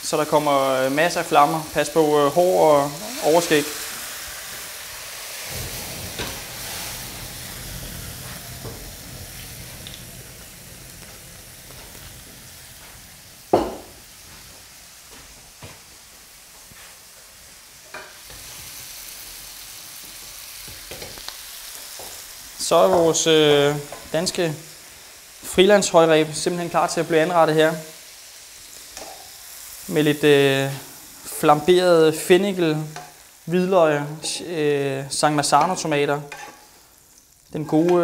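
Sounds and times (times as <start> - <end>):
food sizzling in a pan: 0.0 - 38.0
rumble of burning flames: 5.5 - 13.4
metal knocking on pan: 13.6 - 14.0.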